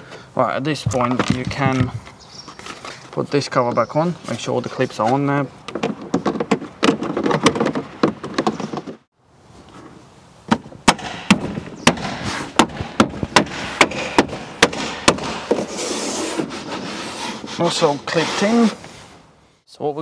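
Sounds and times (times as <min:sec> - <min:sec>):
sharp steady knocks: 0:12.6 - 0:15.6.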